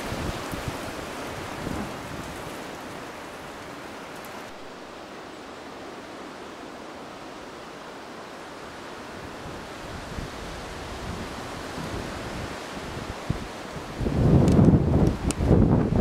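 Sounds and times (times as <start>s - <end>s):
wind buffeting microphone: 0.0s - 4.6s, 9.1s - 16.0s
wind hiss: 0.0s - 16.0s.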